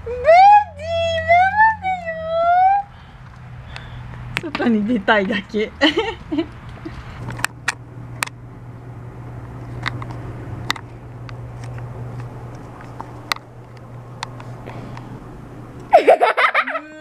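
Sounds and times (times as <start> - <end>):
steady low hum: 0.0 - 17.0
sharp clicks and light knocks: 6.5 - 8.4, 9.4 - 15.1.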